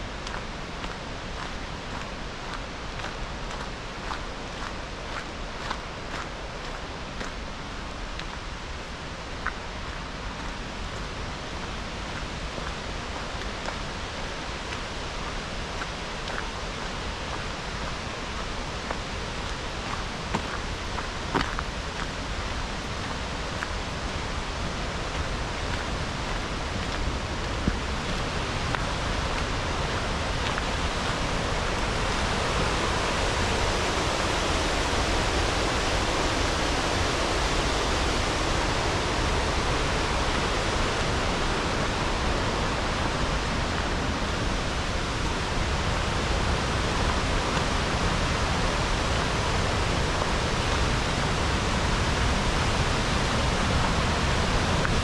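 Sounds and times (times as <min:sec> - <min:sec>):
running water rushing: 0:00.0 - 0:55.0.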